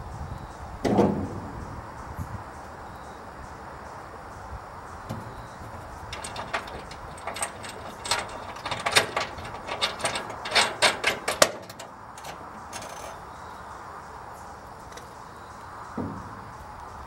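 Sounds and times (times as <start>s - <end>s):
metallic clicks and clanks: 5.1s - 13.2s.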